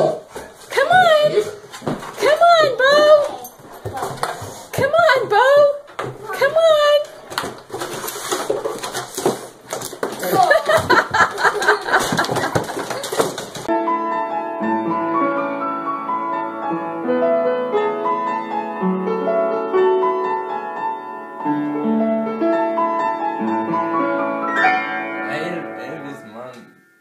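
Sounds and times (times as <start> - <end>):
upright piano chords: 10.9 - 27.0.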